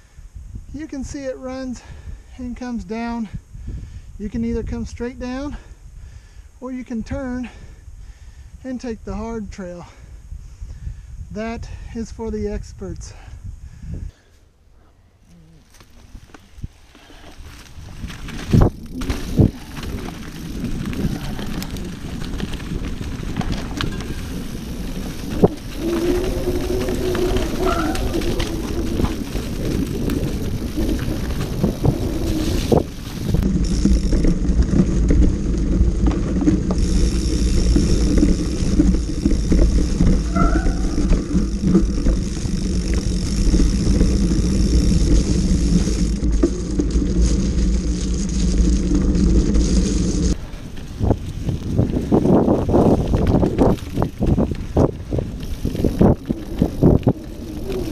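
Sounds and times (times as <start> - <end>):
bike tyres crunching over leaves: 15.4 - 57.9
bike knocking and rattling: 15.6 - 57.9.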